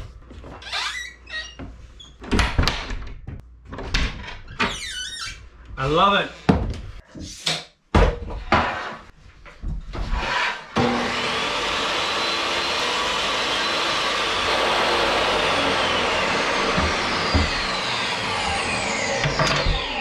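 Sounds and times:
table saw whine: 0:10.7 - 0:20.0
board knocking: 0:15.1 - 0:19.8.

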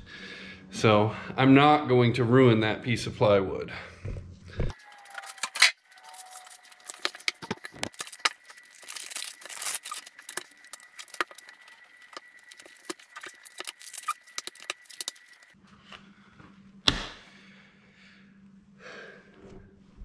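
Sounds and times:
paper rustling and sliding: 0:05.0 - 0:15.6.

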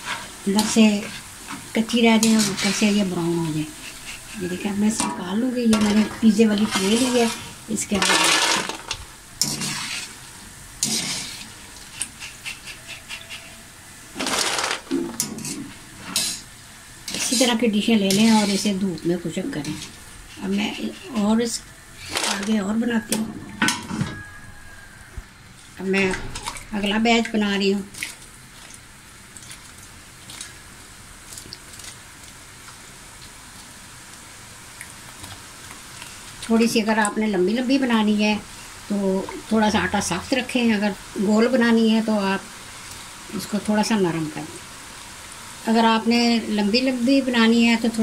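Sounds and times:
batter sizzling in hot oil: 0:00.0 - 0:23.1, 0:23.8 - 0:48.0
oil crackling and popping: 0:06.5 - 0:13.5, 0:26.1 - 0:37.2.

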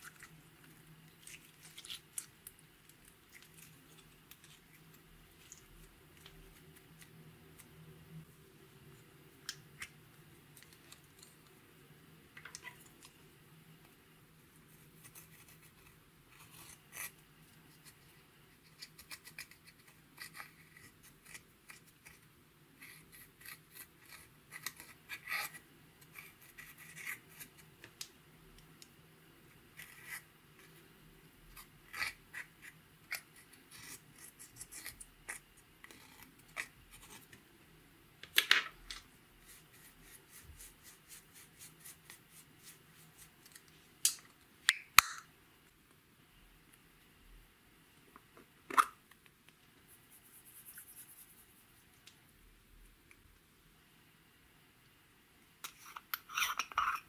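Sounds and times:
pick scratching eyeshadow: 0:49.9 - 0:51.7.

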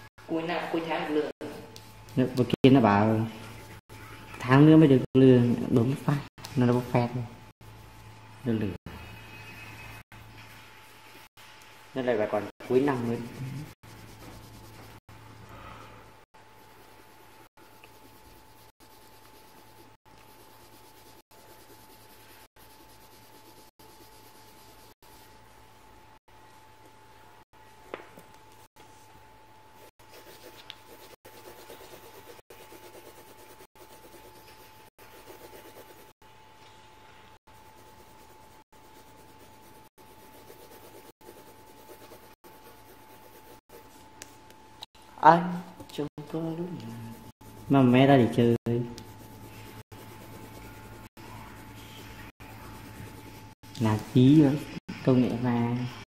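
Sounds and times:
steady low hum: 0:06.3 - 0:55.1
faint rubbing on paper: 0:07.6 - 0:15.2, 0:16.5 - 0:25.4, 0:29.8 - 0:36.2, 0:37.4 - 0:44.4, 0:46.8 - 0:55.1.

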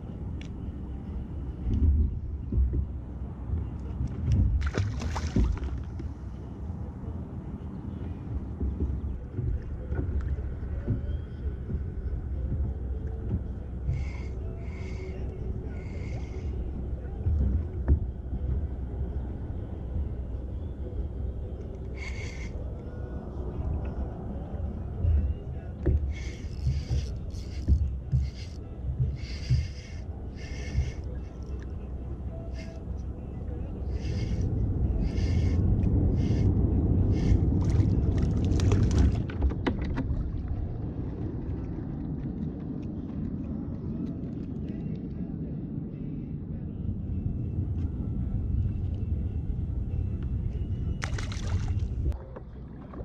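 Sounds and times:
low outdoor rumble: 0:00.0 - 0:53.0
water splashing: 0:04.5 - 0:06.0, 0:37.2 - 0:41.7, 0:51.0 - 0:53.0.

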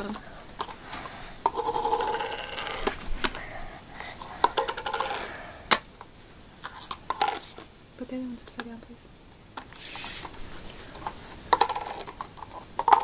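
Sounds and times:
plastic cups clicking on table: 0:01.4 - 0:03.0, 0:11.0 - 0:13.0.

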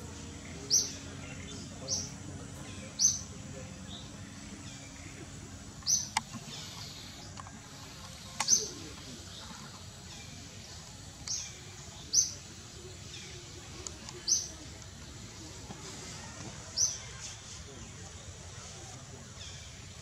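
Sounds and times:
bird chirping: 0:00.0 - 0:14.7
steady outdoor hiss: 0:00.0 - 0:20.0.

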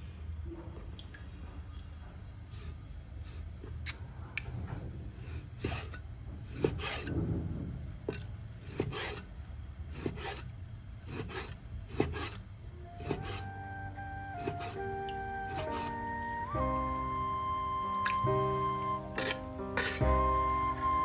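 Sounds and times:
blade scraping through meat: 0:05.6 - 0:07.1, 0:08.7 - 0:09.3, 0:09.9 - 0:12.4, 0:13.0 - 0:13.5, 0:14.4 - 0:14.8, 0:15.5 - 0:16.3, 0:18.6 - 0:20.2
music: 0:12.8 - 0:21.0.

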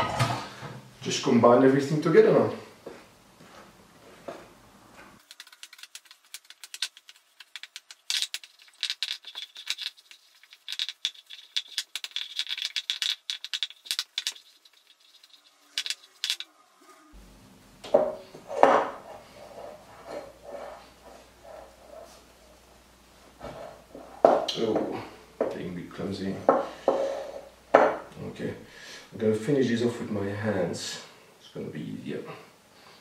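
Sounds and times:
spatula scraping a glass bowl: 0:18.5 - 0:22.4, 0:26.8 - 0:27.5.

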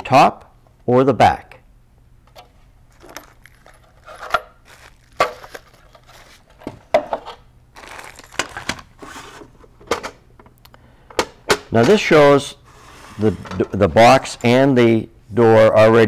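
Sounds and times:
paper rustling: 0:02.9 - 0:06.8, 0:07.8 - 0:09.5.

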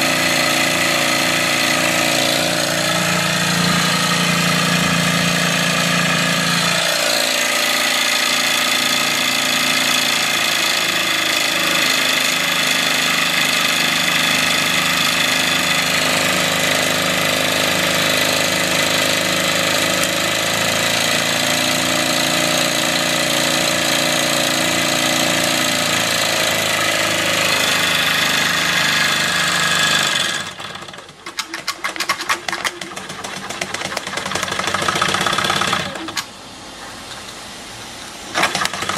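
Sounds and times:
model steam engine running: 0:00.0 - 0:36.3, 0:38.4 - 0:38.9
continuous mechanical whine: 0:30.2 - 0:38.9.

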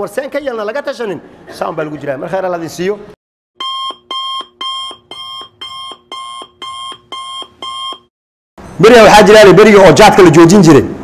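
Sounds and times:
electronic alarm beeps: 0:03.6 - 0:08.1.

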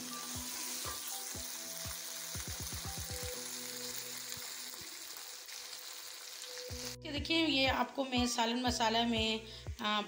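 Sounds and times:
meat sizzling in a pan: 0:00.0 - 0:07.0
background music: 0:00.0 - 0:10.0.

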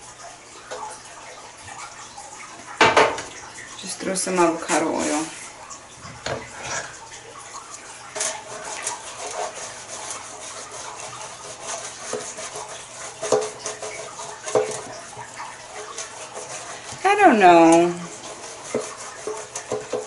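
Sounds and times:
pastry brush scraping metal pan: 0:04.4 - 0:05.5, 0:06.5 - 0:07.0, 0:07.7 - 0:20.0.

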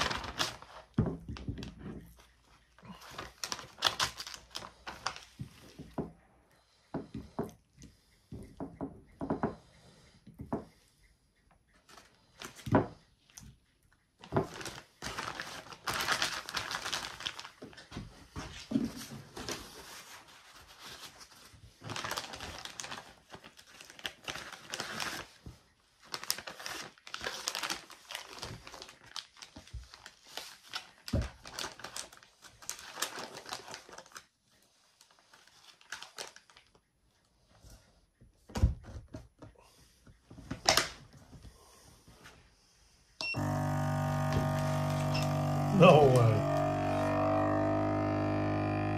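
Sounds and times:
plastic bag crinkling: 0:00.0 - 0:01.5, 0:02.8 - 0:05.4, 0:14.2 - 0:17.8, 0:21.8 - 0:25.4, 0:26.1 - 0:34.3
vacuum pump droning: 0:43.2 - 0:48.9.

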